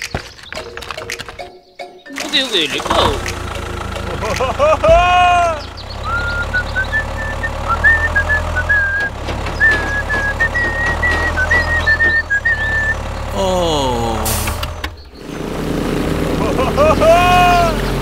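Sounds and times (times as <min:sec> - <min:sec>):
low engine-like rumble: 0:02.8 - 0:18.0
high whistled tune: 0:05.9 - 0:13.0.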